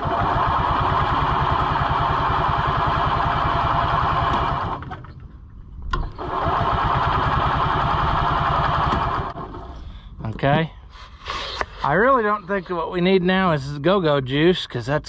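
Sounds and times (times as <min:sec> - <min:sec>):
engine cranking without catching: 0:00.0 - 0:10.0.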